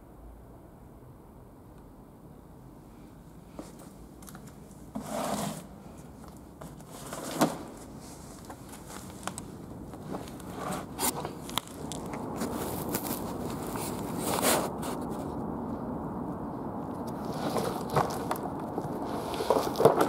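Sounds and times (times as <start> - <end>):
footsteps on papers and debris: 6.1 - 15.3, 17.0 - 20.0.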